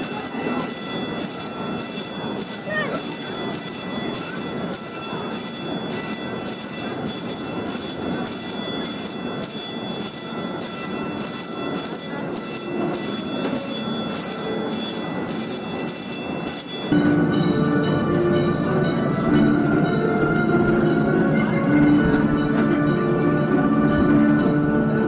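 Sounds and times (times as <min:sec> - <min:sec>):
steam train rumbling along track: 0:00.0 - 0:25.0.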